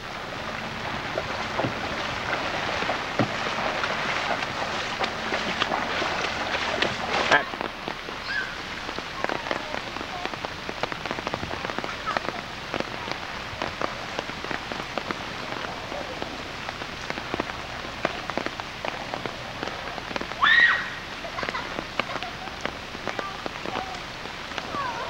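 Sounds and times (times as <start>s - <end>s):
rain hissing on standing water: 0.0s - 25.0s
sharp raindrop impacts: 0.0s - 25.0s.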